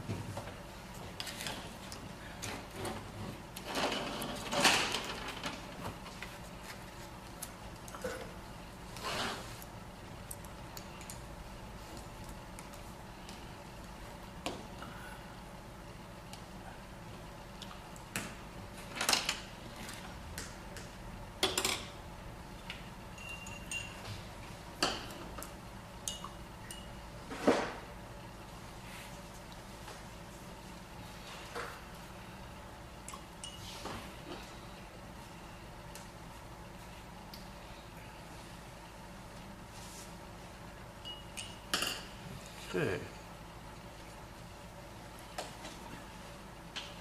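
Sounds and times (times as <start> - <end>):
rustling and scraping: 8.9 - 9.6
thin ringing tone: 23.1 - 24.1, 26.1 - 27.0, 41.0 - 42.0
painting gear clinking on dishware: 23.2 - 24.0.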